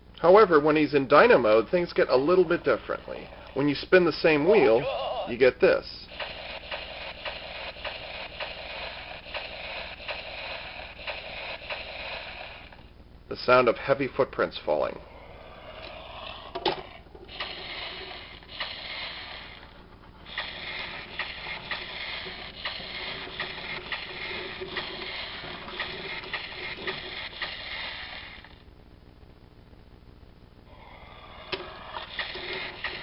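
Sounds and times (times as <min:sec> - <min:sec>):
toy wheels rattling and clicking: 0:06.1 - 0:12.9, 0:16.0 - 0:28.6, 0:31.5 - 0:33.0.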